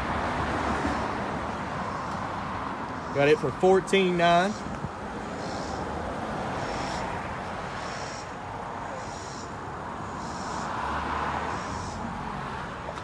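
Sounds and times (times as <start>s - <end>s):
high-pitched chirping call: 5.4s - 5.8s, 6.6s - 7.1s, 7.8s - 8.4s, 9.0s - 10.7s.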